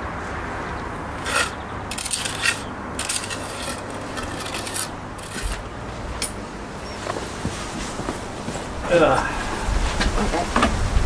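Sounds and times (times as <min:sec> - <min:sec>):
trowel scraping wet mortar: 0:01.2 - 0:05.6.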